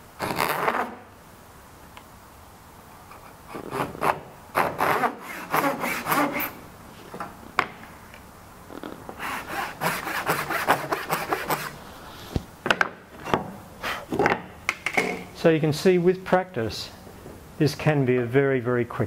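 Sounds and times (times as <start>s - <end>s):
pull saw rasping strokes: 3.6s - 6.6s, 9.2s - 11.8s.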